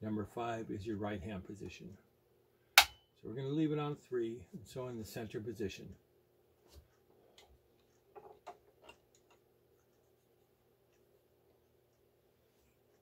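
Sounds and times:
faint steady hum: 0.0s - 13.0s
faint clicks and taps: 6.6s - 10.1s.

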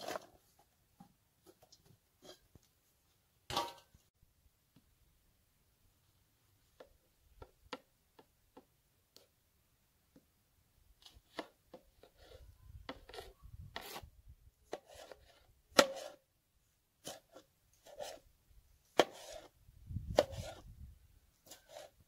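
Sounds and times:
light knife scraping: 12.0s - 14.1s, 14.7s - 16.2s, 19.0s - 19.5s, 20.1s - 20.7s, 21.4s - 22.0s.

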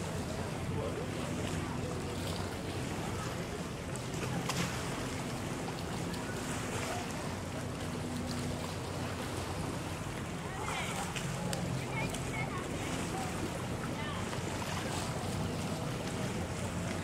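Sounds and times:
distant motorboat engine droning: 0.0s - 17.0s.

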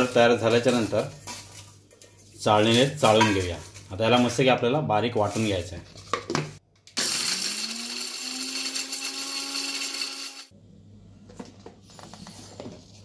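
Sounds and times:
mixer grinder whirring: 7.0s - 10.5s.

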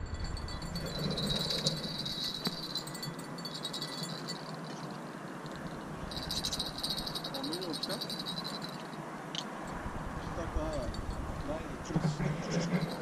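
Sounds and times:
crickets trilling: 0.3s - 9.8s.

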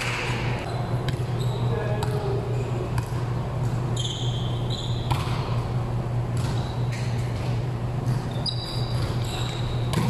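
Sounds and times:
steady low hum: 0.0s - 10.0s
sneakers squeaking on wooden floor: 0.6s - 2.2s, 3.9s - 5.5s, 8.1s - 10.0s.

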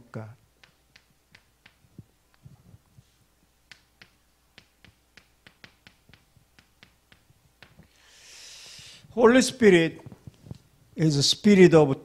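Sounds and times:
chalk clicking on a chalkboard: 0.6s - 2.4s, 3.7s - 7.9s.

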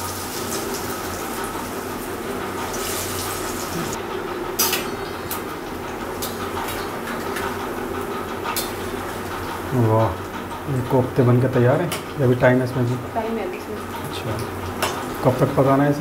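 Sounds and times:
food deep-frying in oil: 0.0s - 4.0s.

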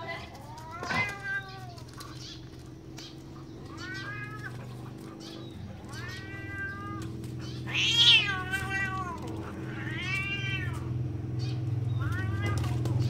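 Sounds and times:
cat yowling: 0.3s - 1.9s, 3.4s - 11.0s, 11.9s - 12.8s.

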